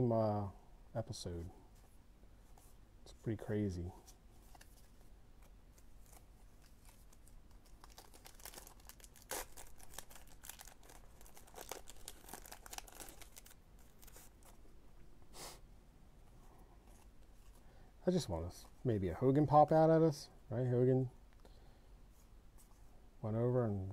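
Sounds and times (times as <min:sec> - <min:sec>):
wrapper rustling and crinkling: 0:04.4 - 0:14.7.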